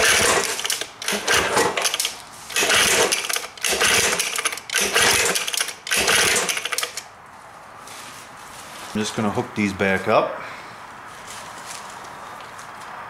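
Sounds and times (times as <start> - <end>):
outboard engine pull-start whirring: 0.0 - 7.1.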